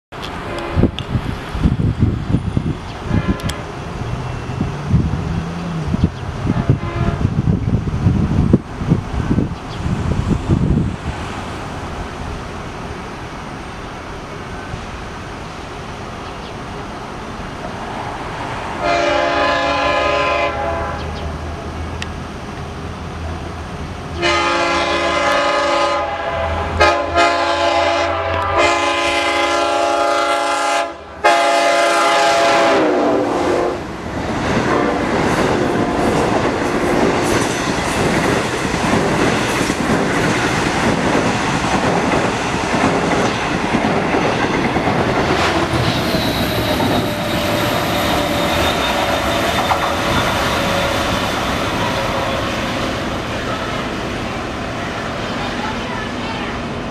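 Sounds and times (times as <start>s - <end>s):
train coaches rushing by: 0.1s - 56.9s
locomotive horn blasts: 0.4s - 1.0s, 3.1s - 3.7s, 6.5s - 7.4s, 18.8s - 21.2s, 24.2s - 33.8s, 34.7s - 35.1s, 46.1s - 51.1s.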